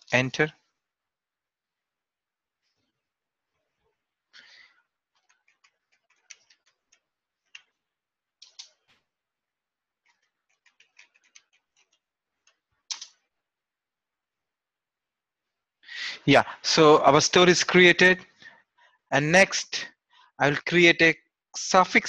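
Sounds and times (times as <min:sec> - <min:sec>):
keyboard typing: 0:05.1 - 0:07.8, 0:08.4 - 0:09.0, 0:10.0 - 0:13.3.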